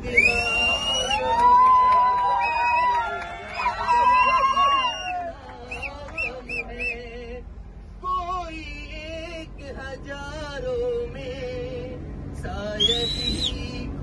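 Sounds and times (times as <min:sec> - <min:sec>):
man singing into a microphone: 0:08.0 - 0:14.0.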